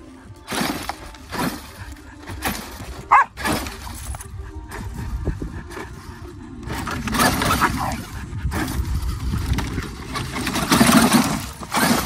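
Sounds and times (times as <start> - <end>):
electric motor whining: 0.0 - 12.0
tyres scrabbling on gravel: 0.0 - 12.0.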